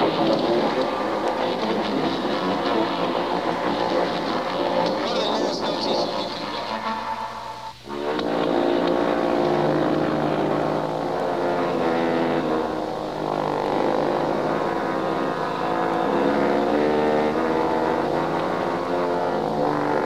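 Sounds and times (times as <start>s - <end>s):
french horn sustained chord: 0.0s - 20.0s.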